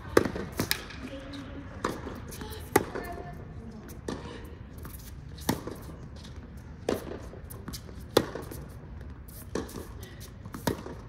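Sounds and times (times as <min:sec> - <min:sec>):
ball bouncing: 0:01.8 - 0:03.2, 0:10.5 - 0:11.0
tennis ball hits: 0:08.1 - 0:08.6, 0:10.6 - 0:11.0.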